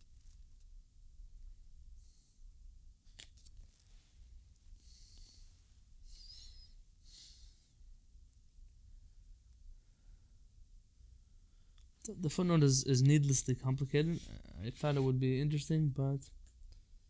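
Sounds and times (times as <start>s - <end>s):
low room hum: 0.0s - 17.0s
soft rustles: 3.1s - 5.9s.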